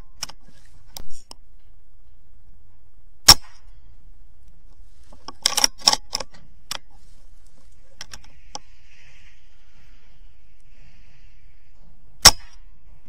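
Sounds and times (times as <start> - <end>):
air rifle shot: 3.2 - 3.8, 12.2 - 12.7
rifle action metallic clicks: 5.2 - 6.9, 12.2 - 12.7.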